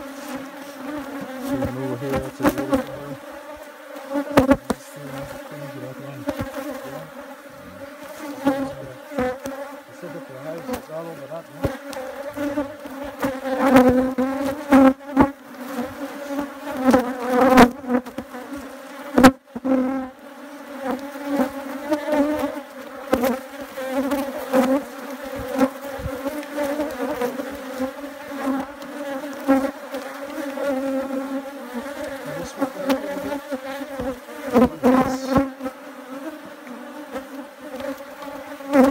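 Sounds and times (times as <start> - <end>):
honeybees buzzing: 0.0 - 38.9
knocks from hive boxes: 0.2 - 3.6, 4.2 - 5.4, 6.2 - 6.9, 7.9 - 18.2, 24.0 - 27.8, 31.8 - 35.6.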